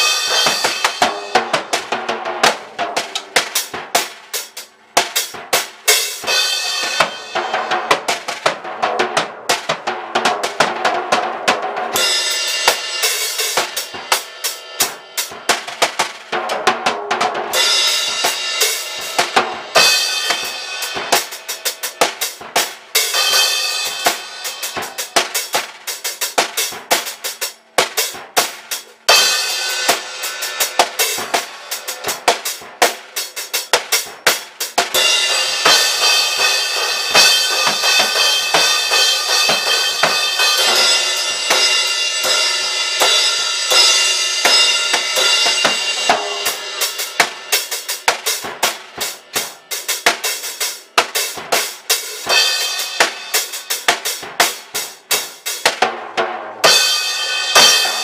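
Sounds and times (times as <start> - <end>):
kick and snare rock beat: 0.0 - 58.0
cymbal wash: 35.0 - 47.9.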